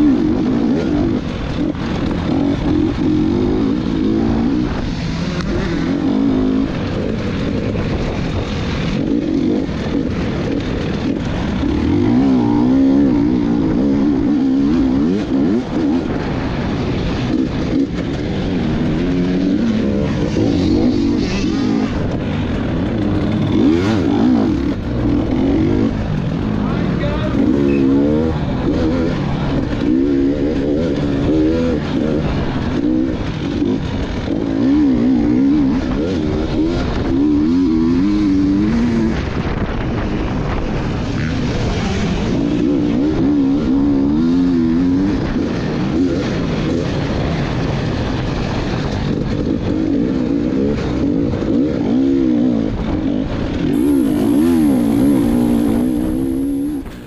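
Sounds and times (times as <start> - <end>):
dirt bike engine revving: 0.0 - 39.4, 53.7 - 57.0
steady rushing noise: 0.0 - 49.6, 52.2 - 57.0.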